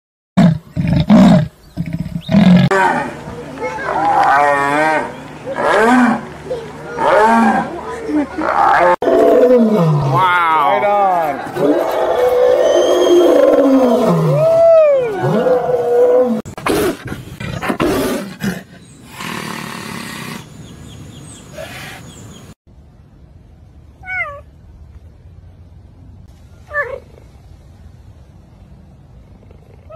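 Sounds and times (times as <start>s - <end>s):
lion roaring: 8.4s - 20.4s.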